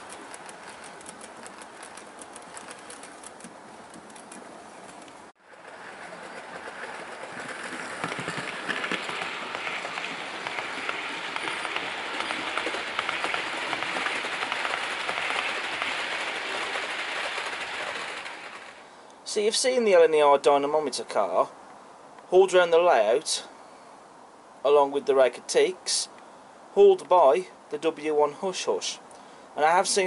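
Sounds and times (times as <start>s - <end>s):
model train wheels clicking on rail: 0.0s - 18.9s.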